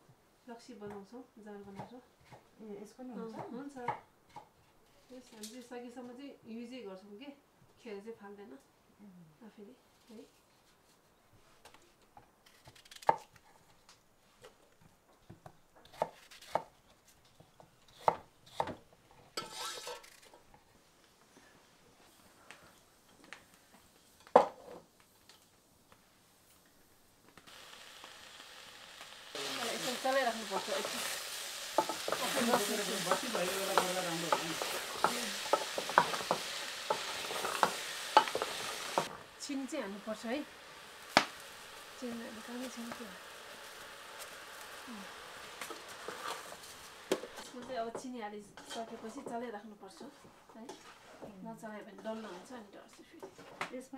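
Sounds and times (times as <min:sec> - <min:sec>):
food sizzling: 0:19.4 - 0:20.6, 0:22.9 - 0:53.5
pieces clattering into steel pot: 0:29.8 - 0:39.2.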